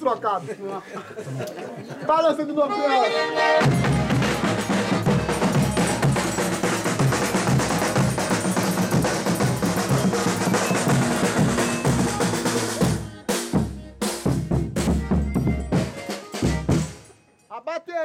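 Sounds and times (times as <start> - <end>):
folk band playing: 2.6 - 17.3
drum beats: 3.4 - 17.2.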